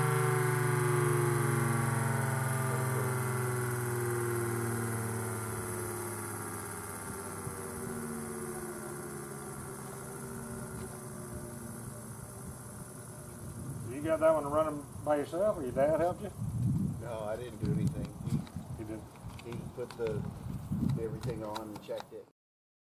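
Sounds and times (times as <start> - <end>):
siren winding down: 0.0 - 15.4.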